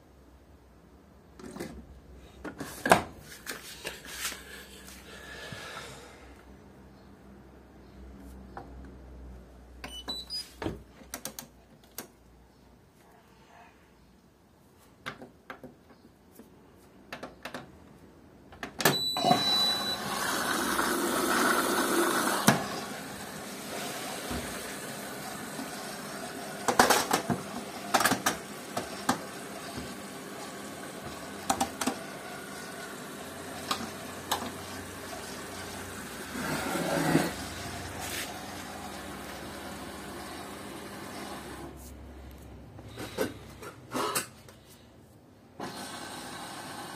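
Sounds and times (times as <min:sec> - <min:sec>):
washing machine beep: 0:09.8 - 0:10.5, 0:18.8 - 0:20.4
washing machine hum: 0:18.8 - 0:41.8, 0:45.6 - 0:46.9.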